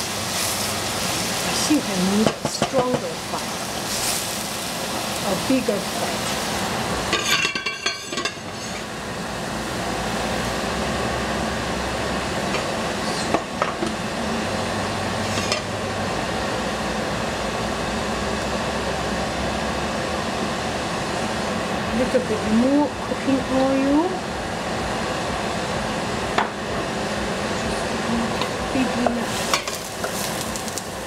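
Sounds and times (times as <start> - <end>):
gas burner rushing: 0.0 - 31.0
pot clanking onto grate: 2.1 - 3.4, 7.1 - 8.8, 15.3 - 15.7, 29.1 - 30.4.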